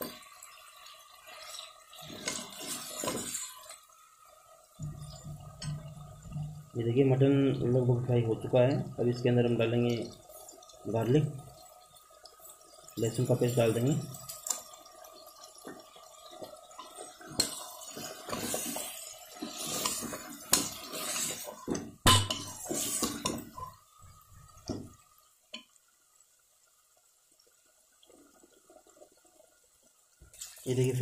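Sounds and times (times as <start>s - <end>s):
metal ladle stirring and scraping: 1.3s - 3.8s, 16.8s - 23.8s.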